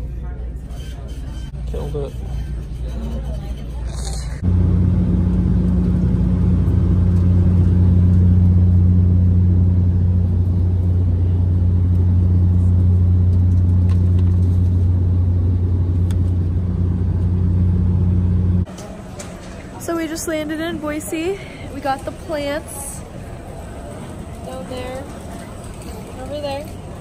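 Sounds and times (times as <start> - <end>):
airliner engine drone in cabin: 4.4 - 19.8.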